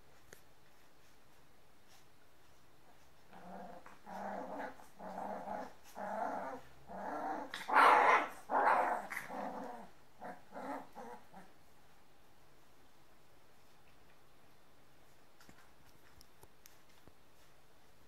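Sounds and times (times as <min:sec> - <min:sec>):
dog growling: 0:03.3 - 0:11.5.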